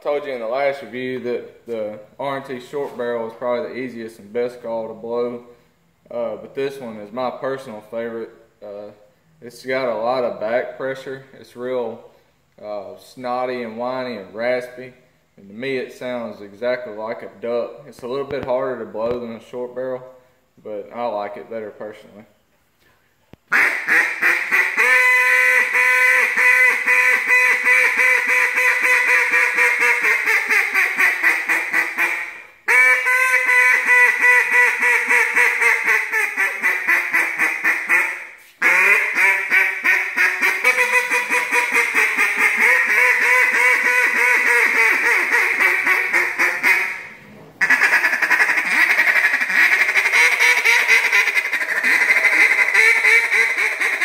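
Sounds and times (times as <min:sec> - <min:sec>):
duck call quacking: 0:23.5 - 0:54.0.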